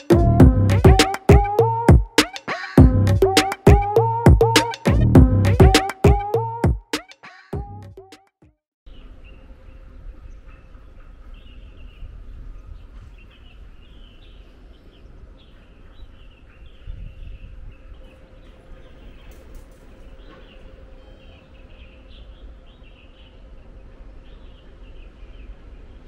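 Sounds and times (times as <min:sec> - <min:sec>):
low outdoor rumble: 0:00.2 - 0:01.0, 0:02.8 - 0:03.3
small birds chirping: 0:08.9 - 0:26.0.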